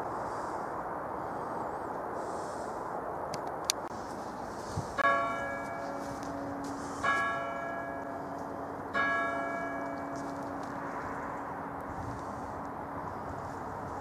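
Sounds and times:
church clock bell striking: 0:05.0 - 0:13.4.

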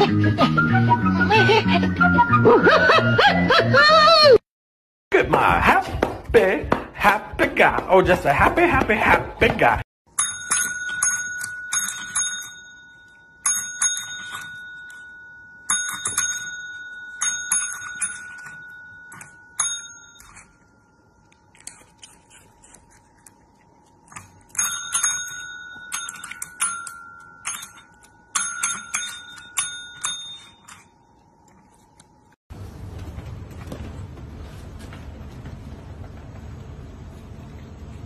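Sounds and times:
call bells dinging: 0:07.0 - 0:20.9, 0:24.5 - 0:31.4.

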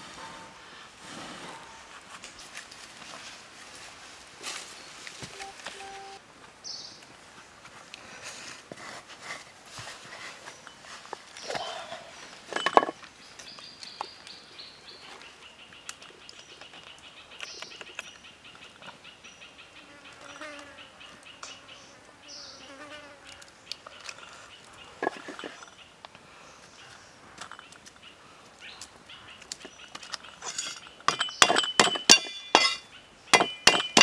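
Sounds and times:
birds chirping: 0:10.4 - 0:22.8, 0:23.6 - 0:34.0.

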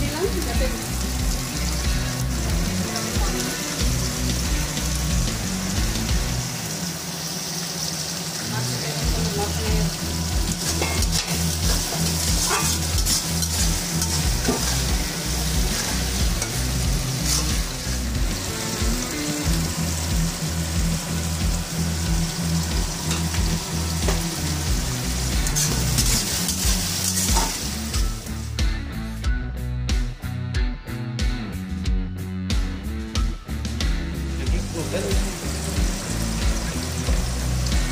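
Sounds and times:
vegetables sizzling in hot oil: 0:00.0 - 0:28.6, 0:34.4 - 0:37.9
spatula scraping metal pan: 0:10.6 - 0:14.9, 0:15.6 - 0:18.1.

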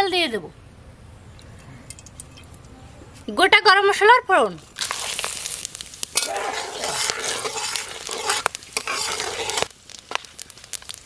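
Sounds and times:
spices sizzling in hot oil: 0:04.6 - 0:11.0.

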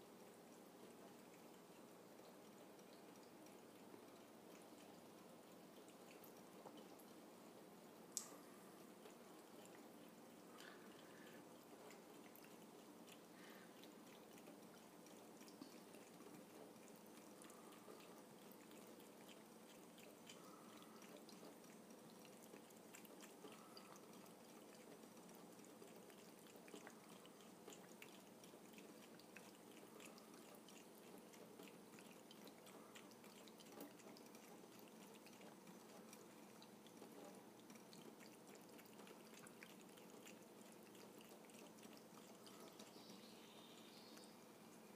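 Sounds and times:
cat lapping water: 0:00.0 - 0:44.9.

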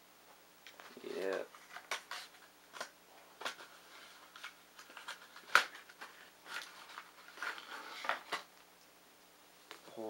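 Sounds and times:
plastic packaging crinkling: 0:00.9 - 0:08.5.

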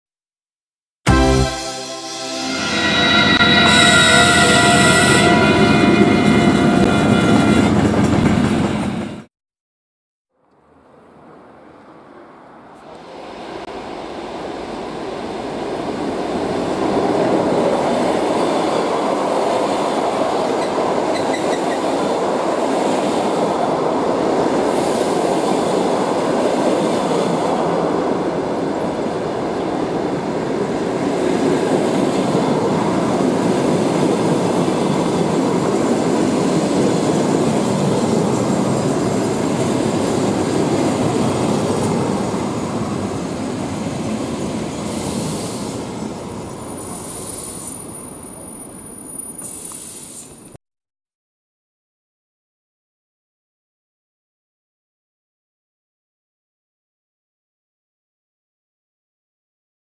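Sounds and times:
train wheels rumbling on rails: 0:04.4 - 0:09.3.

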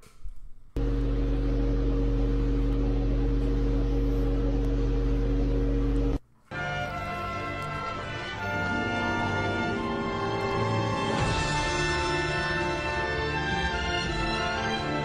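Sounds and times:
loud droning hum with deep buzz: 0:00.8 - 0:06.2.

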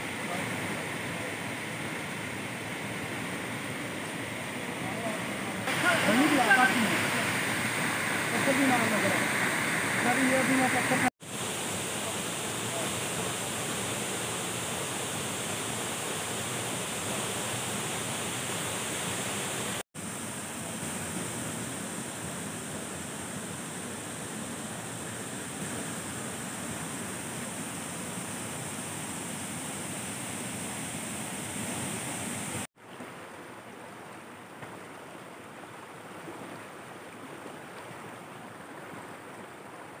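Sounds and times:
flowing stream: 0:00.0 - 0:40.0
waterfall rushing into a pool: 0:04.6 - 0:34.9
loud hiss: 0:05.7 - 0:25.0.

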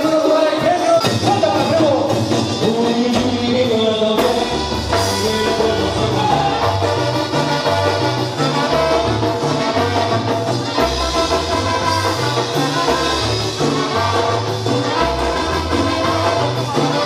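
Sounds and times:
band playing dance music: 0:00.0 - 0:17.0
bass line: 0:00.0 - 0:17.0
horns playing melody: 0:00.0 - 0:17.0.

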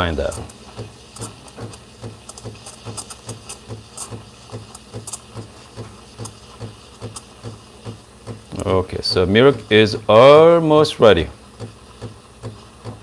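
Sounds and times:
steam wand hissing into milk: 0:00.0 - 0:13.0.

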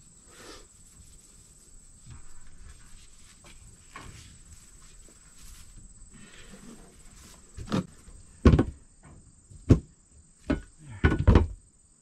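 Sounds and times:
heavy thuds and knocks: 0:07.5 - 0:11.6.

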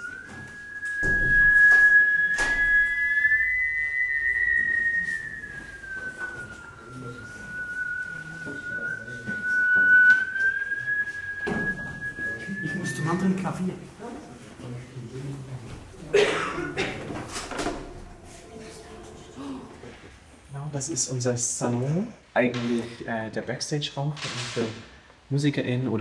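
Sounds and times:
sliding whistle-like electronic tone: 0:00.0 - 0:13.8.

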